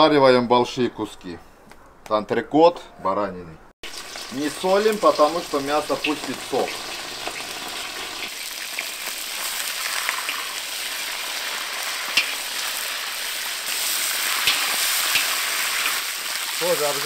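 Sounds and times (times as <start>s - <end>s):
meat sizzling in fat: 3.8s - 17.0s.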